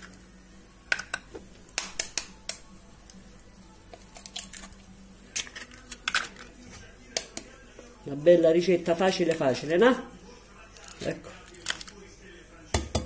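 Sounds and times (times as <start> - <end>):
eggs cracking against glass bowl: 0.9 - 2.6.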